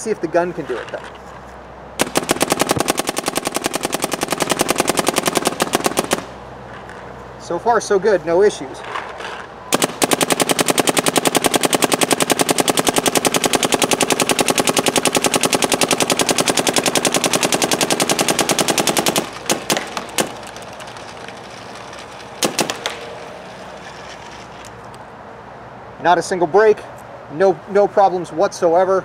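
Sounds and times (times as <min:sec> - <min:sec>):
paintball marker firing: 0:02.0 - 0:06.4, 0:09.7 - 0:21.5, 0:22.4 - 0:23.2.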